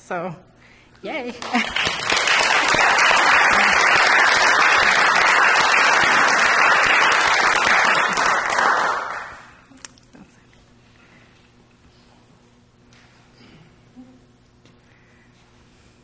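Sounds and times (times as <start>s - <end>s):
crowd applause: 1.4s - 9.6s.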